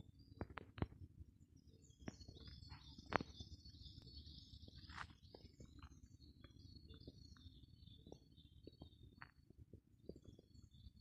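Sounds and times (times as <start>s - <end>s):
birds calling in background: 0.0s - 9.4s
songbird singing repeated notes: 1.6s - 9.4s.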